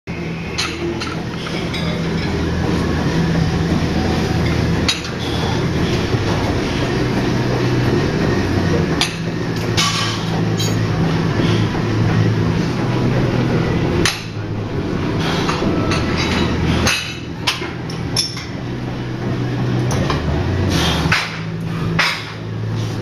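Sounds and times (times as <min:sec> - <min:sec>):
low rumble of weight room: 0:00.1 - 0:23.0.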